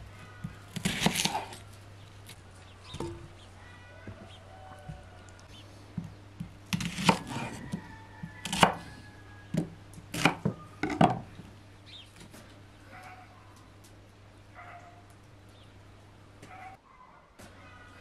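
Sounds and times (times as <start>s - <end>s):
knife chopping on wooden board: 0.7s - 1.6s, 6.7s - 8.9s, 9.5s - 11.2s.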